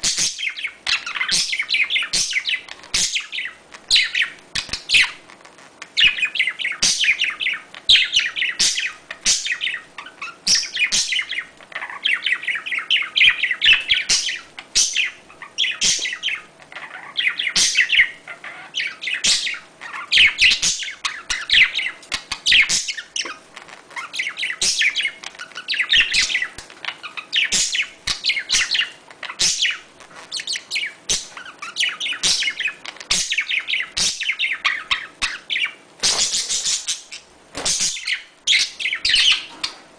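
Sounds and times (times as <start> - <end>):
budgerigars chirping: 0.0 - 39.8.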